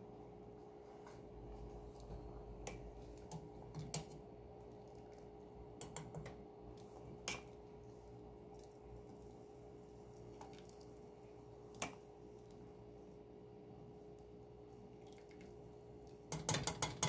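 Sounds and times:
steady low hum: 0:00.0 - 0:16.3
metal tongs knocking on pot: 0:16.3 - 0:17.0.

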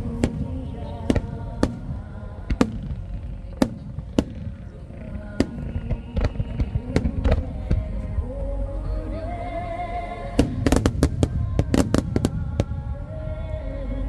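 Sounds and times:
fireworks bangs: 0:00.0 - 0:08.0, 0:10.4 - 0:13.3
music playing: 0:00.0 - 0:14.0.

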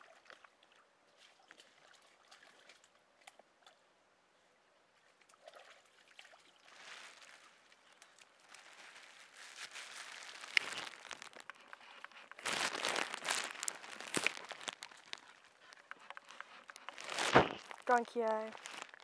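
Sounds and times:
dry grass and leaves crackling: 0:06.5 - 0:19.0
footsteps crunching on dirt path: 0:08.4 - 0:19.0.

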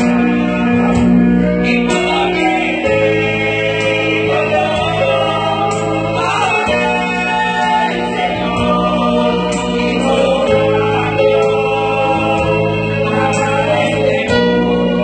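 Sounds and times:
sustained instrumental accompaniment: 0:00.0 - 0:15.0
women singing worship song: 0:00.0 - 0:15.0.

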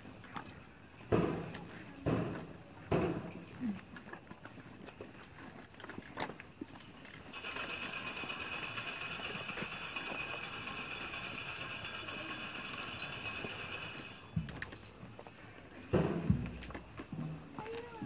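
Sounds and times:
continuous rattling clatter: 0:00.0 - 0:03.7, 0:04.3 - 0:18.0
sharp knocks: 0:01.1 - 0:03.5.

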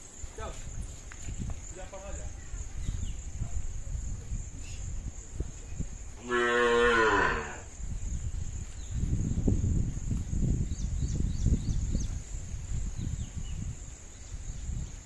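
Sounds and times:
cow mooing: 0:06.2 - 0:07.6.

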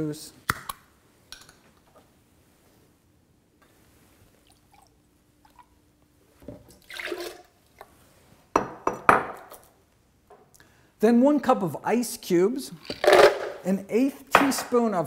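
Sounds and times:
juice pouring and glugging: 0:04.3 - 0:05.8, 0:06.6 - 0:07.9.

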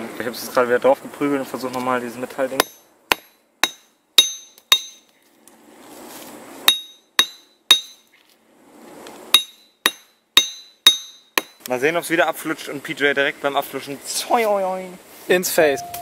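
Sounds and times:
hatchet hammering metal: 0:02.6 - 0:05.1, 0:06.7 - 0:08.1, 0:09.3 - 0:11.7
rustling: 0:05.0 - 0:06.6.

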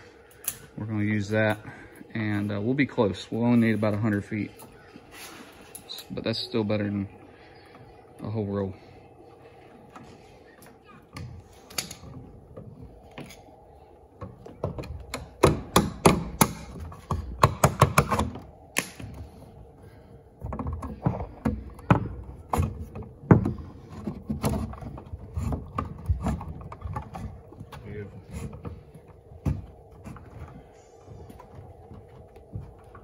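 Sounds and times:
cable knocking and clicking: 0:14.2 - 0:19.2.

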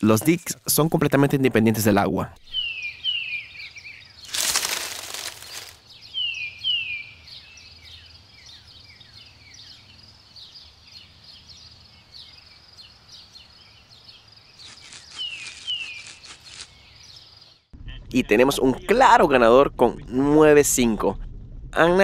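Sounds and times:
faint bird chirping: 0:02.4 - 0:18.0.

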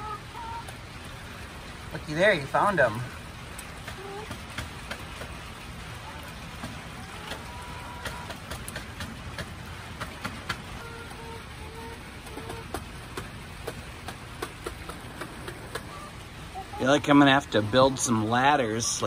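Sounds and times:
steady rain hiss: 0:00.0 - 0:19.0
soft hen calls: 0:15.1 - 0:17.0.

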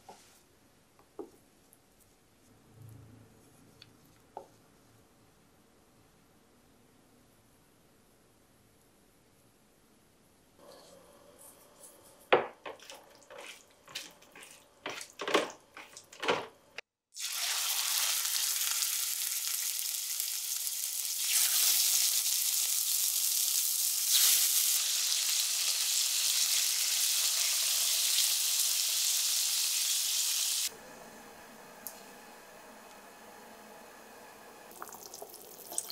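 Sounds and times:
chicken sizzling in frying pan: 0:17.2 - 0:30.7.

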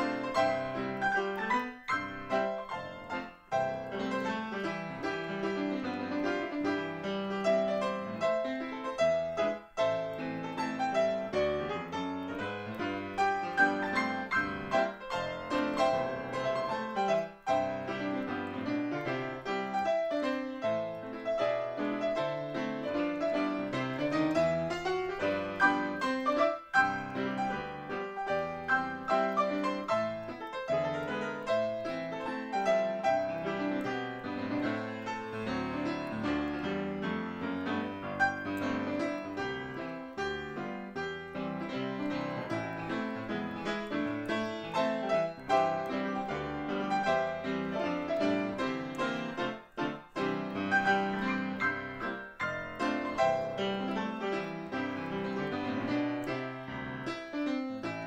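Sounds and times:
solo piano playing a hymn: 0:00.0 - 0:58.0.

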